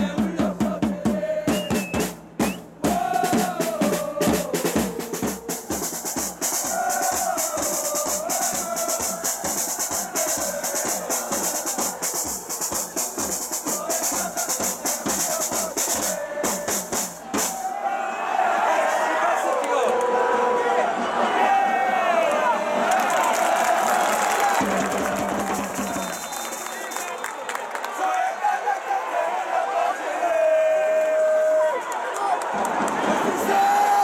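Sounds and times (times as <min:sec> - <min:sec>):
drums beaten with mallets: 0:00.0 - 0:17.7
crowd chanting: 0:00.0 - 0:27.2, 0:27.8 - 0:34.0.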